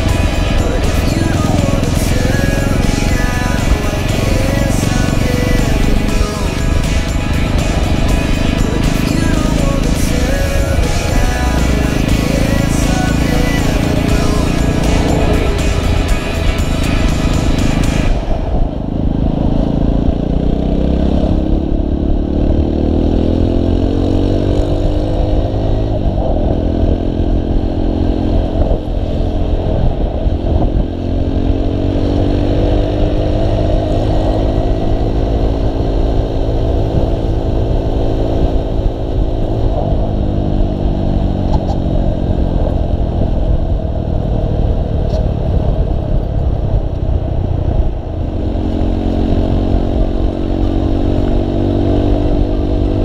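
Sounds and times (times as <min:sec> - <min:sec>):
motorcycle engine accelerating: 0:00.0 - 0:53.0
wind rumble on microphone: 0:00.0 - 0:53.0.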